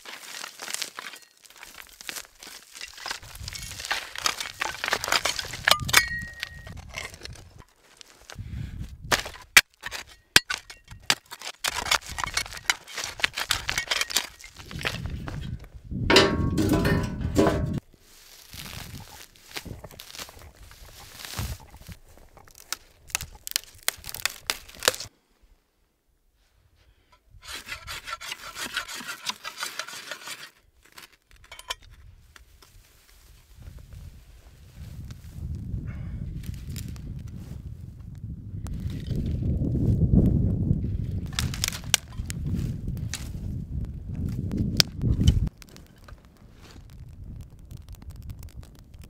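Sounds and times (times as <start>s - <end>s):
dirt and gravel scraping: 0.0s - 25.1s, 27.4s - 35.6s, 38.7s - 40.2s, 40.8s - 49.0s
tinder crackling: 0.0s - 25.1s, 36.4s - 49.0s
stones clinking: 0.6s - 7.7s, 9.2s - 15.1s
ferro rod rasping: 27.4s - 30.6s.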